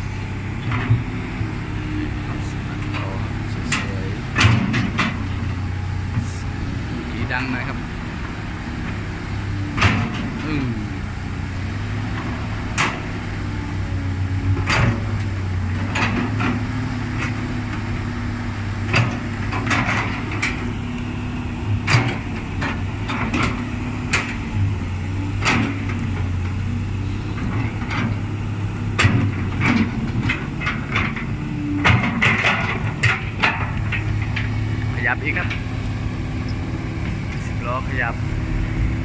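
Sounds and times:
excavator diesel engine running: 0.0 - 39.0
sharp knocks and clanks: 2.8 - 6.3, 9.7 - 10.6, 18.8 - 20.7, 21.8 - 24.4, 25.4 - 26.6, 28.9 - 35.7.

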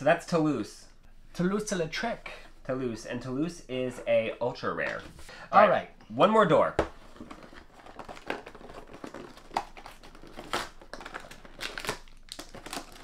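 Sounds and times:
toy packaging crinkling and rustling: 7.0 - 13.0.

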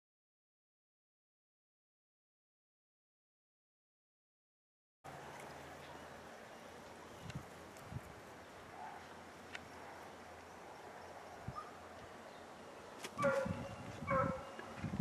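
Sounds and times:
dog barking: 8.7 - 9.1, 13.2 - 14.5.

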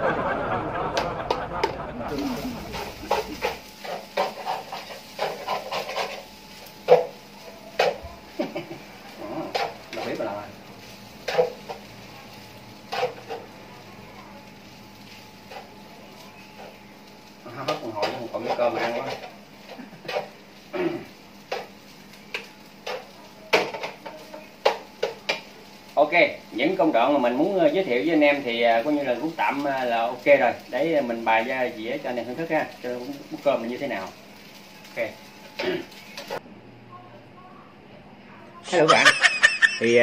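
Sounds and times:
spatula scraping frying pan: 2.1 - 10.2, 10.8 - 13.6, 17.5 - 25.5.

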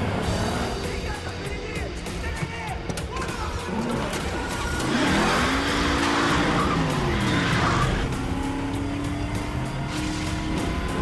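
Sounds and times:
car engine revving: 0.0 - 0.9, 3.6 - 11.0
tires skidding and squealing: 3.6 - 11.0.

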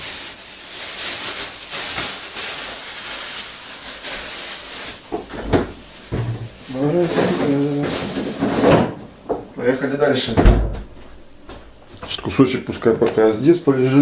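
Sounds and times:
plastic bag rustling: 0.0 - 9.0.

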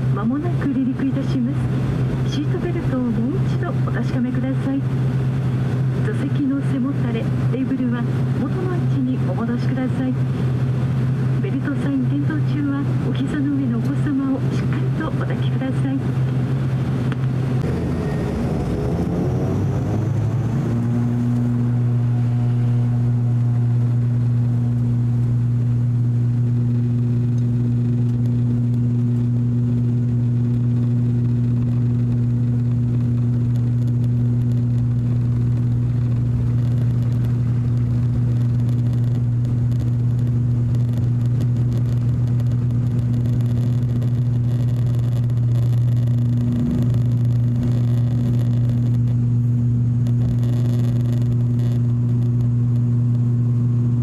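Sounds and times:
turboprop engines powering up: 0.0 - 54.0.

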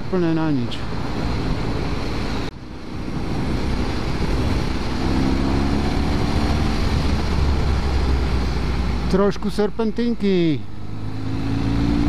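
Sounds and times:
wind rush on microphone: 0.7 - 9.1
motorcycle engine: 1.1 - 9.2, 10.6 - 12.0.

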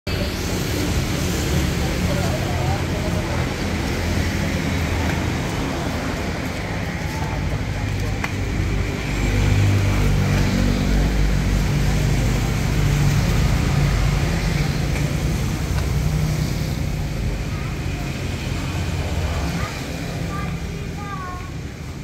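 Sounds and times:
people talking: 0.1 - 21.7.

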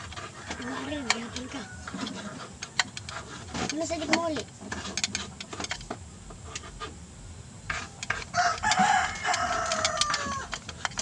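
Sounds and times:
rooster crowing: 0.3 - 2.2, 8.3 - 10.6.

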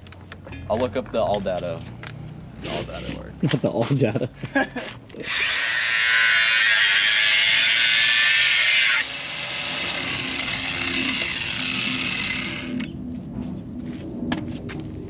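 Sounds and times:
power tool grinding metal: 5.2 - 12.9.

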